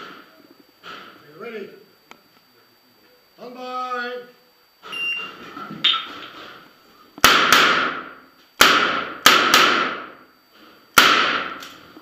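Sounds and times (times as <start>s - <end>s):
echoing gunshots: 7.2s - 10.2s, 11.0s - 11.6s.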